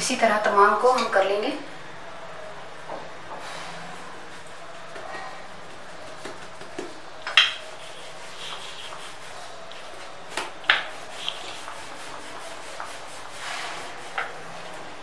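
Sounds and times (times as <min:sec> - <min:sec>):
rolling pin rubbing on dough: 0:05.8 - 0:15.0.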